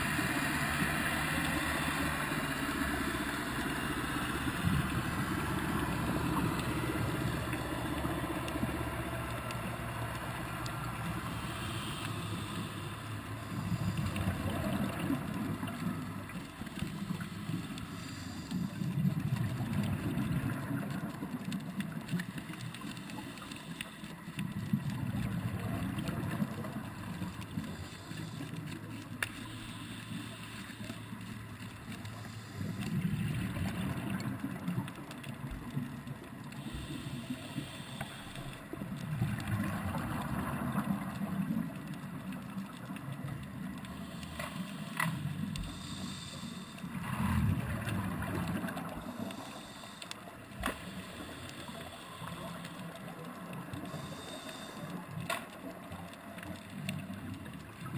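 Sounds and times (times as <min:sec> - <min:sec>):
steady regulator hiss: 0:10.9 - 0:14.2, 0:16.4 - 0:19.0, 0:27.6 - 0:28.7, 0:29.3 - 0:31.2, 0:32.1 - 0:33.0, 0:36.5 - 0:38.7, 0:44.0 - 0:47.0, 0:49.0 - 0:55.1
diver exhaling bubbles underwater: 0:47.0 - 0:49.2.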